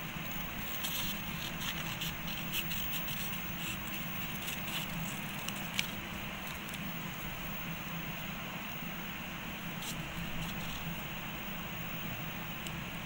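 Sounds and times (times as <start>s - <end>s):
scissors snipping paper: 0.7s - 6.8s.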